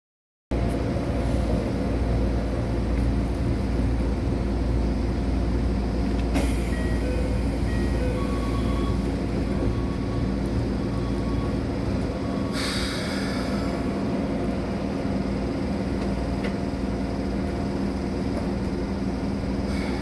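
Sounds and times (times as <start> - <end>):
train equipment hum: 0.5 - 20.0.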